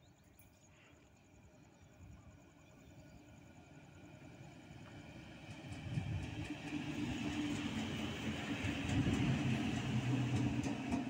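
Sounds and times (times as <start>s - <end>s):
low locomotive hum: 0.0s - 11.0s
train wheels running on rails: 3.6s - 11.0s.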